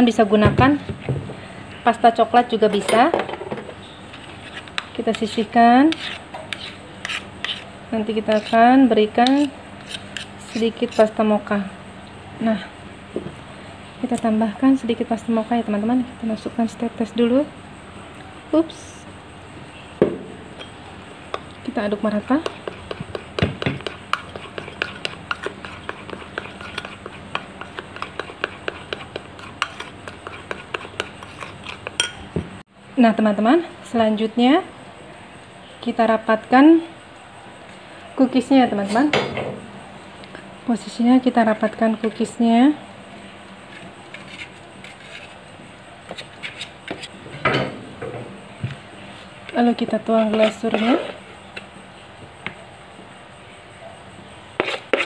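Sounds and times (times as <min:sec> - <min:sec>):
metal spatula scraping baking tray: 0:04.1 - 0:11.1, 0:50.1 - 0:51.3
metal spoon scraping ceramic bowl: 0:04.1 - 0:11.2, 0:22.2 - 0:32.2, 0:50.1 - 0:51.2, 0:54.6 - 0:55.0
spatula clatter: 0:22.3 - 0:32.3.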